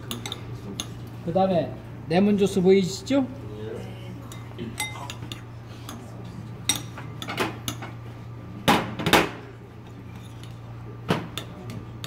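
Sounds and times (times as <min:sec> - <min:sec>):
metal spoon clinking in glass bowl: 0:04.3 - 0:05.4.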